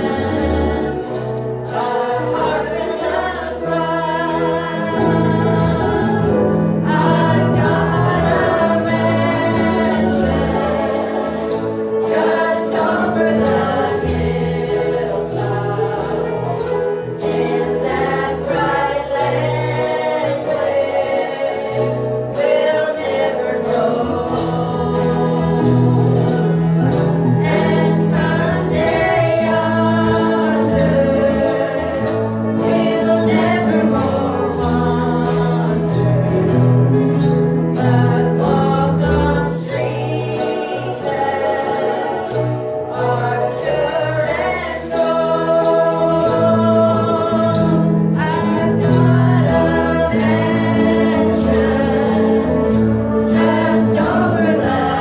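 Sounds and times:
women singing in harmony: 0.0 - 55.0.

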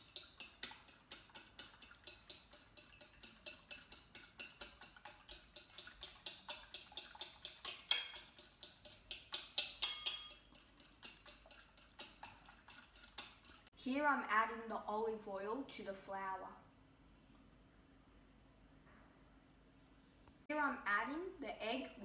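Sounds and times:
utensil clinking against ceramic bowl: 0.0 - 13.7.

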